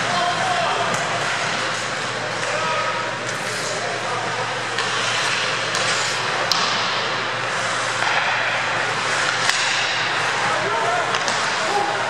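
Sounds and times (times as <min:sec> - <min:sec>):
skates scraping ice: 0:00.0 - 0:12.0
steady low hum: 0:00.0 - 0:12.0
sticks clicking on puck: 0:04.8 - 0:06.9, 0:09.2 - 0:09.8.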